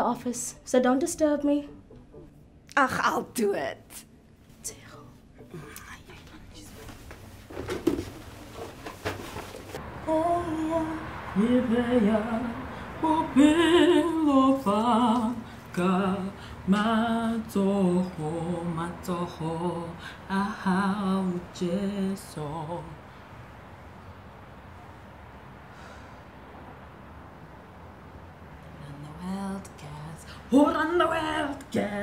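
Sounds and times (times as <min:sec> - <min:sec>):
woman singing unaccompanied: 0:09.8 - 0:23.0, 0:28.7 - 0:32.0.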